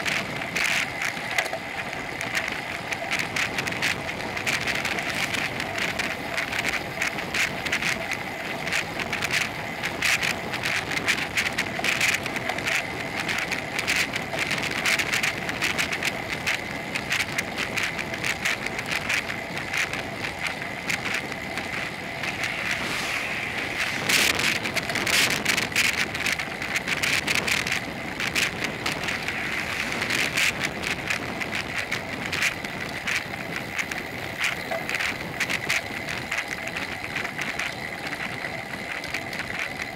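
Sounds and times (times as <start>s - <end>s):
bicycle rattling on asphalt: 0.0s - 39.9s
wind noise on microphone: 0.0s - 39.9s.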